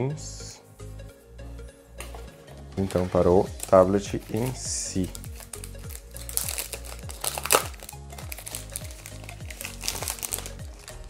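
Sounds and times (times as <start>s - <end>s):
upbeat background music: 0.0s - 11.0s
plastic sleeve crinkling: 2.8s - 11.0s.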